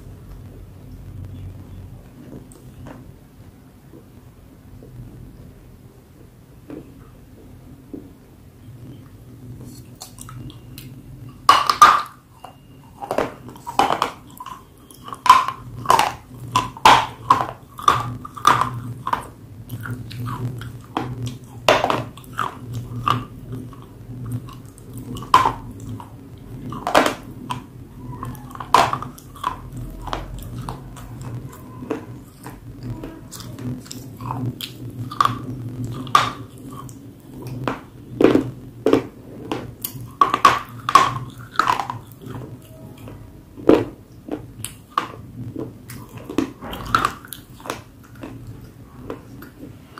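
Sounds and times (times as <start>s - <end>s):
quiet chewing: 9.6s - 11.0s, 12.3s - 49.9s.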